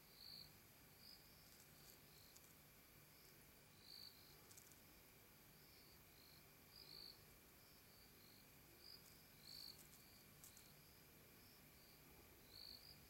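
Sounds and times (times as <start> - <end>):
insects chirping: 0.1 - 13.0
soft ticks: 9.0 - 10.7.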